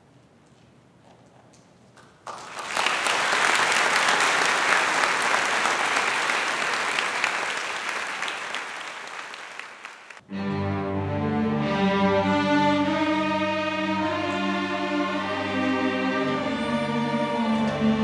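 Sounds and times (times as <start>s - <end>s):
crowd applause: 2.2s - 10.2s.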